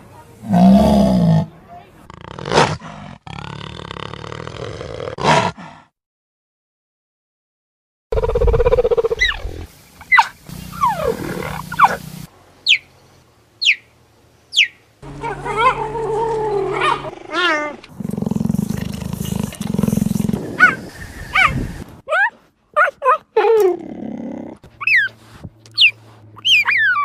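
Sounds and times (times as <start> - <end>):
cheetah yowling calls: 10.1 - 12.0, 25.8 - 27.0.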